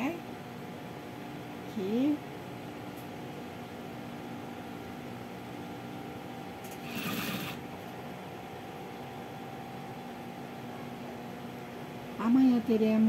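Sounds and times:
steady hum: 0.0s - 13.0s
sewing machine stitching: 6.7s - 7.6s.

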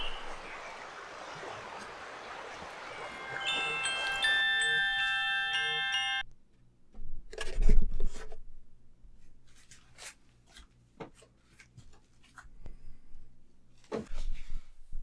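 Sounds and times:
chiming tune: 2.7s - 6.3s.

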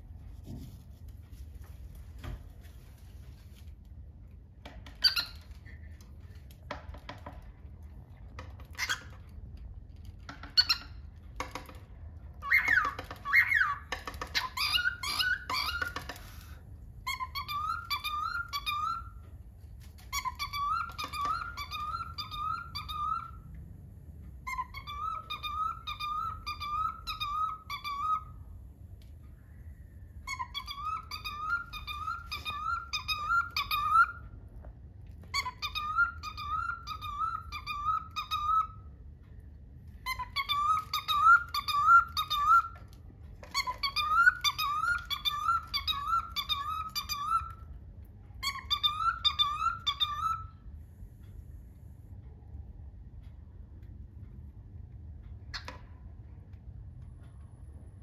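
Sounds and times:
cockatiel chirping: 4.9s - 6.3s, 8.4s - 19.3s, 20.0s - 23.4s, 24.4s - 28.4s, 30.2s - 34.4s, 35.2s - 38.9s, 39.9s - 47.8s, 48.4s - 50.7s.

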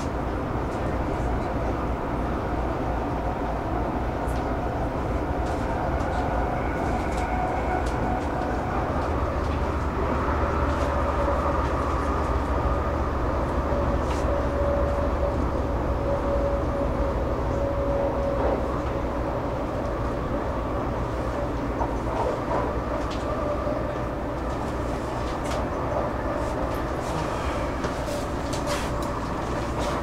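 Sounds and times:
train rumble and rail noise: 0.0s - 30.0s
train motor whine: 6.1s - 19.6s.

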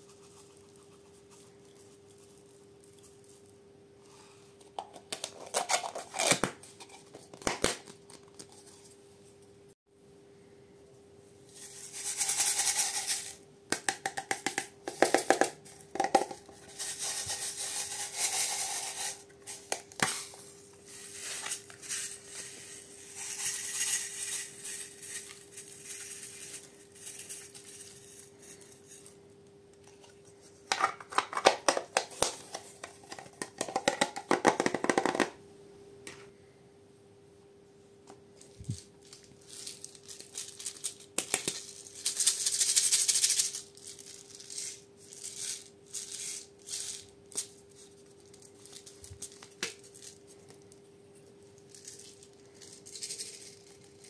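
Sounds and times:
faint steady hum: 0.0s - 54.0s
plastic containers clicking and tapping: 13.7s - 16.4s, 30.7s - 35.4s
crinkly plastic rustling: 38.4s - 50.7s, 51.6s - 54.0s.

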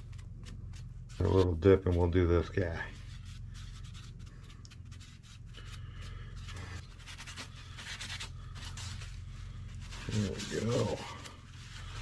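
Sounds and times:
steady low hum: 0.0s - 12.0s
paper rustling: 2.9s - 12.0s
paper napkin wiping wood: 6.5s - 12.0s.

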